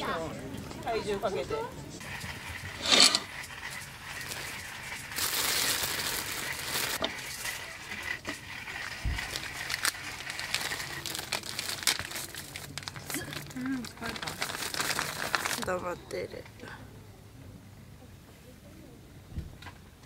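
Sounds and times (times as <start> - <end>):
plastic bag crinkling: 4.2 - 7.5, 8.3 - 16.1.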